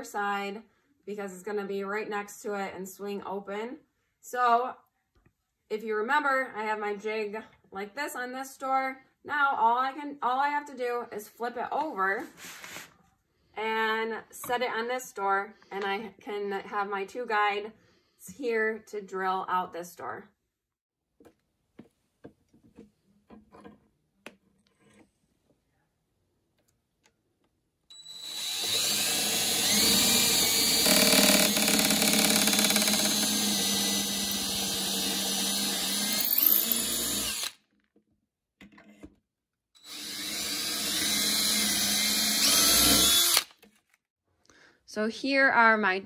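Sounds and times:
cordless drill drilling wood: 27.9 - 37.7, 39.8 - 43.6.

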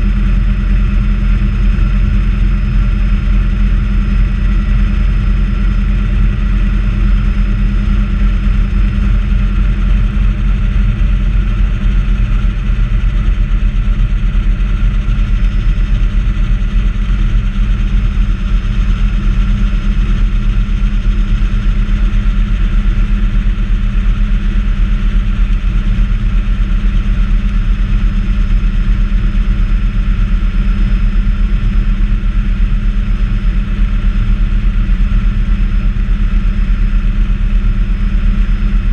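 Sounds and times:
helicopter rotor beating: 0.0 - 23.8
turbine engine whine: 0.0 - 38.9.

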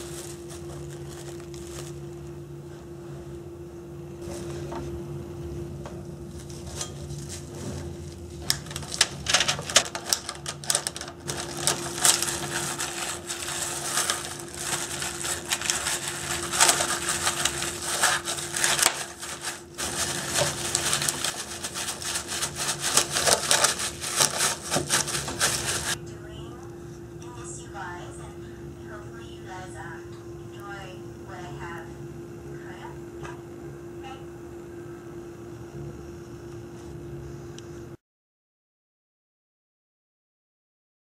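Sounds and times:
plastic wrap crinkling: 0.0 - 2.3, 6.3 - 26.0
faint hum: 0.0 - 38.0.

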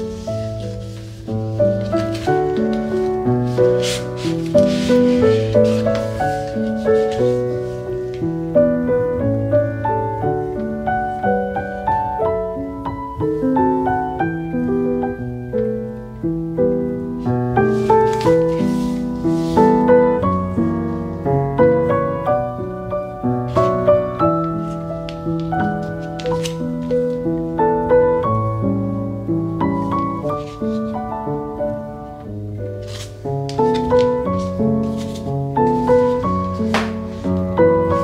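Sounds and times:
soft rustle: 0.0 - 8.9, 17.0 - 21.3, 22.9 - 27.6, 29.5 - 38.0
gentle piano music: 0.0 - 38.0.

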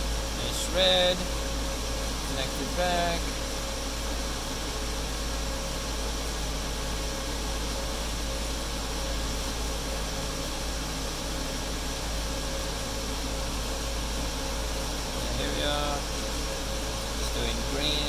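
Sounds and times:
fan whirring hiss: 0.0 - 18.0.

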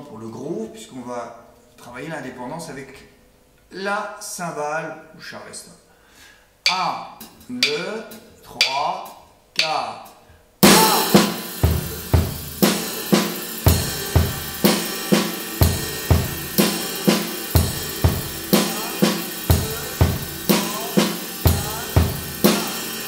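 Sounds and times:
cymbal ringing: 6.6 - 7.8, 10.6 - 23.0
drum kit groove: 6.6 - 9.8, 10.6 - 23.0.

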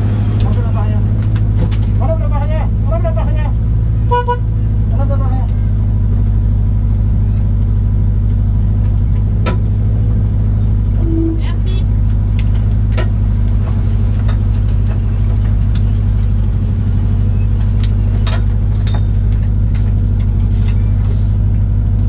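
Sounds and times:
car engine running at low revs: 0.0 - 22.0.

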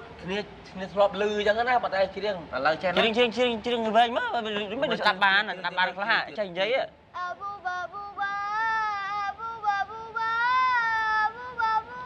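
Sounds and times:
girl singing in a high voice: 7.2 - 12.0.

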